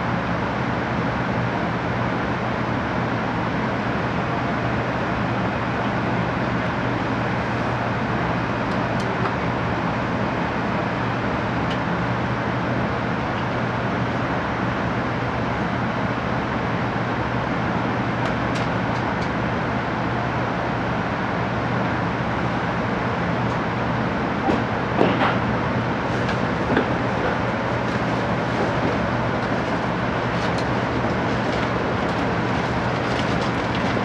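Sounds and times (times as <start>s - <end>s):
train cabin rumble: 21.9s - 34.0s.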